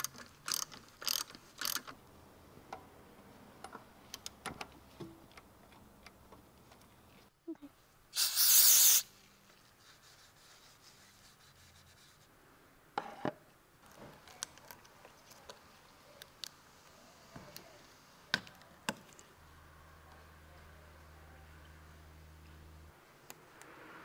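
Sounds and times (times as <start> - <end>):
cloth rubbing on metal: 9.4 - 12.3.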